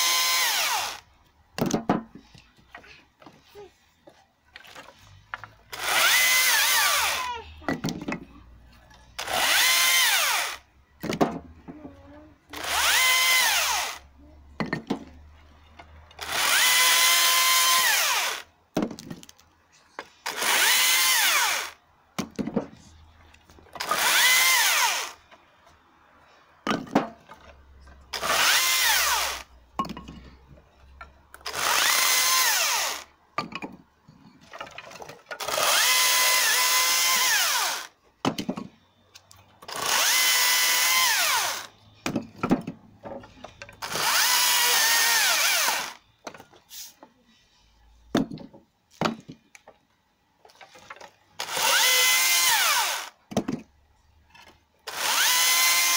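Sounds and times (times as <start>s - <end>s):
battery chainsaw cutting branches: 0.0s - 1.0s, 5.7s - 7.4s, 9.2s - 10.6s, 12.5s - 14.0s, 16.2s - 18.4s, 20.2s - 21.8s, 23.8s - 25.2s, 28.1s - 29.5s, 31.4s - 33.1s, 35.4s - 37.9s, 39.6s - 41.7s, 43.8s - 46.0s, 51.4s - 53.2s, 54.9s - 55.9s.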